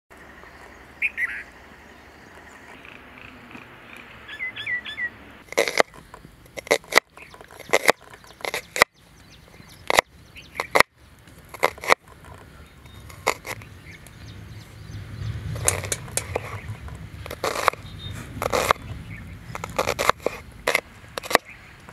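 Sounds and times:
small bird chirping: 0.2 - 20.6
cleaver chopping on wooden board: 6.6 - 8.9.

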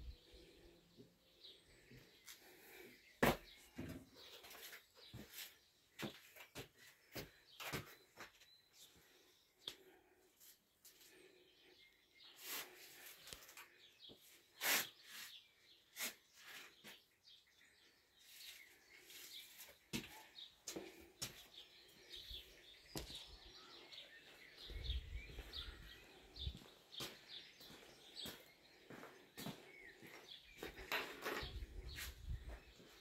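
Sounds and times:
faint bird chirps: 11.0 - 33.0.

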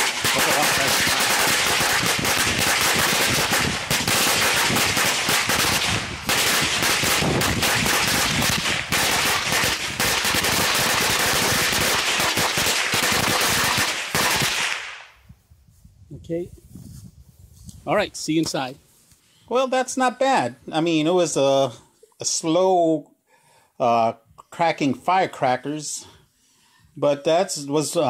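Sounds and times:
firecrackers cracking: 0.0 - 15.1.

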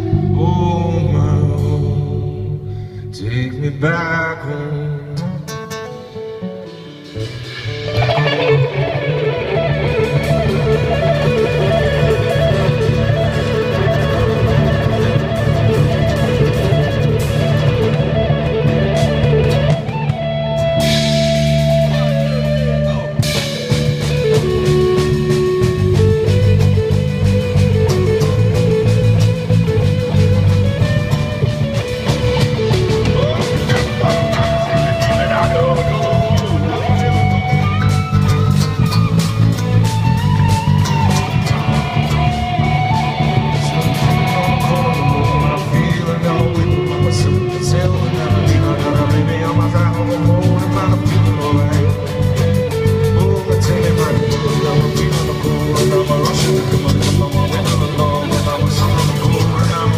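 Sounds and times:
steady low bass: 0.0 - 4.0
acoustic guitar strumming: 0.0 - 59.9
electric guitar lead notes: 0.0 - 59.9.

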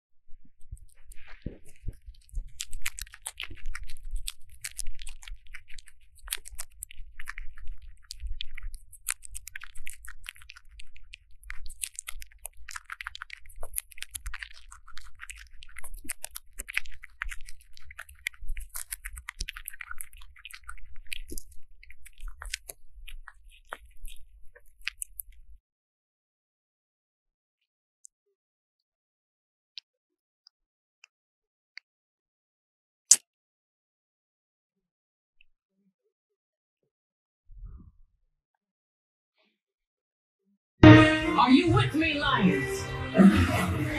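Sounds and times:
squirrel chewing crunching: 0.6 - 25.5.

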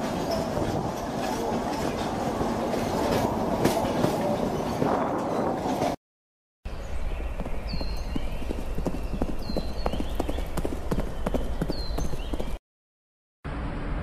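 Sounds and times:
horse hooves clip-clopping: 7.4 - 12.6.

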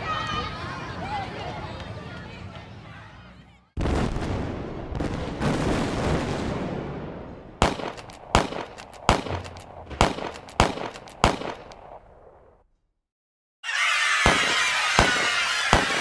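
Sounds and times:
rumbling blast: 3.8 - 12.0
sharp bangs with echo: 7.6 - 12.3, 14.2 - 16.0.

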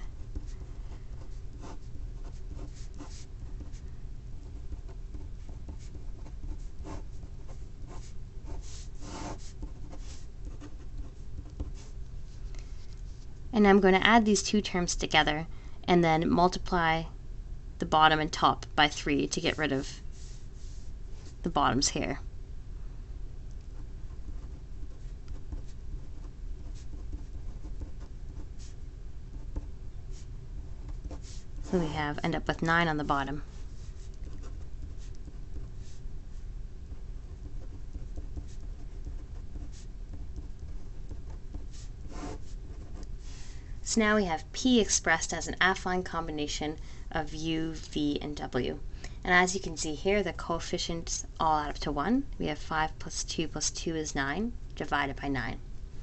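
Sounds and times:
low background rumble: 0.0 - 56.0
steady low hum: 0.0 - 56.0
pen scratching on paper: 0.2 - 3.8, 4.4 - 12.0, 23.7 - 36.0, 36.9 - 43.5.

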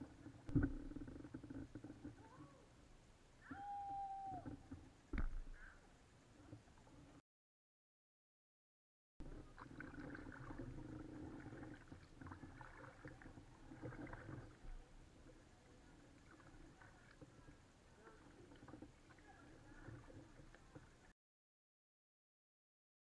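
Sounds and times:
paddle blades dipping and dripping: 0.0 - 2.4, 9.2 - 21.1
water lapping at hull: 0.0 - 2.8, 9.2 - 21.1.

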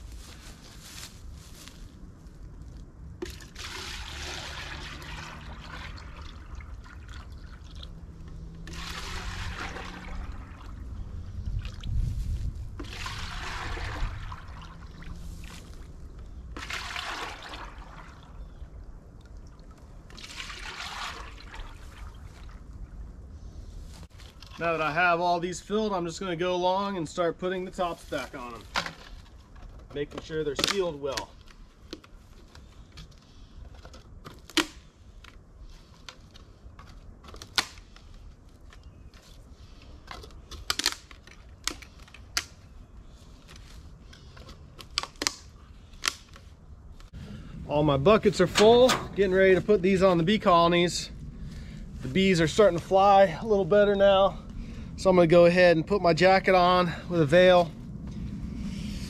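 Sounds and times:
syrup pouring splashily: 3.3 - 7.9, 8.7 - 10.7.

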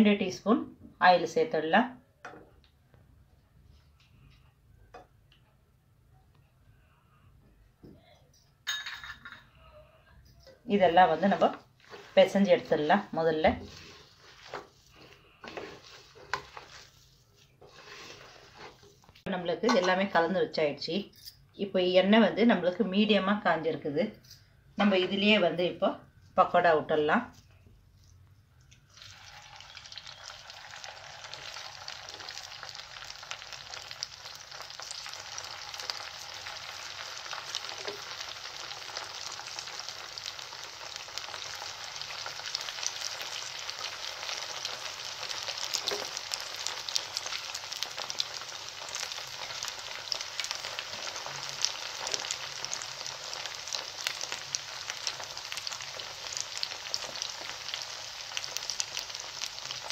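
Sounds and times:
batter deep-frying in oil: 10.7 - 20.6, 28.0 - 59.9.

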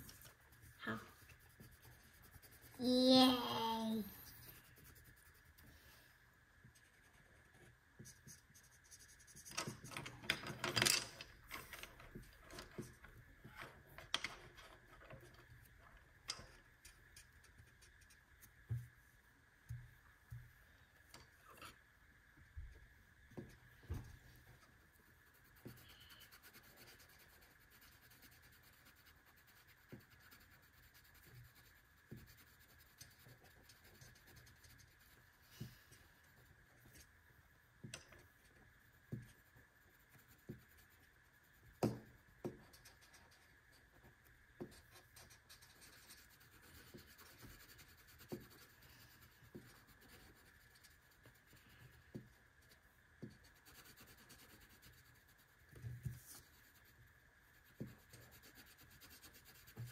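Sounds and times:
colouring rubbing on paper: 0.0 - 5.8, 25.0 - 37.0, 44.6 - 59.9
faint high hum: 0.0 - 10.3, 11.2 - 59.9.

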